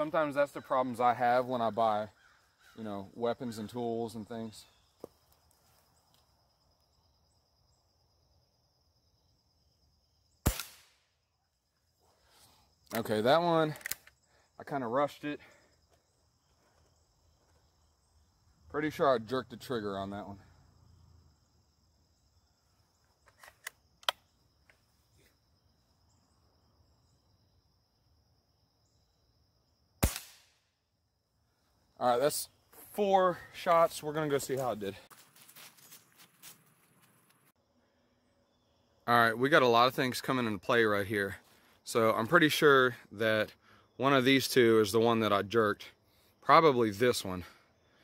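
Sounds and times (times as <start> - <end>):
high insect trill: 0.0 - 48.0
air rifle shot: 10.4 - 11.0, 30.0 - 30.6
air rifle metallic clicks: 13.7 - 14.2, 23.2 - 24.3.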